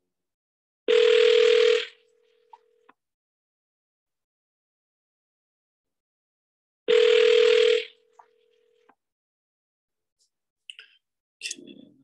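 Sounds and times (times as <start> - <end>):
phone ringback tone: 0.9 - 2.0, 6.9 - 8.0.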